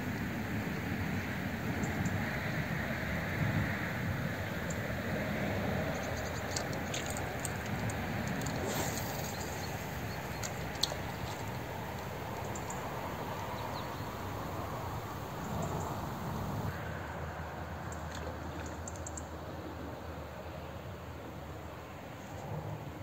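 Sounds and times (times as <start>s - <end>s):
wind: 0.0s - 23.0s
fast river current: 3.8s - 18.6s
faint high ticks: 5.8s - 12.9s, 17.9s - 19.3s.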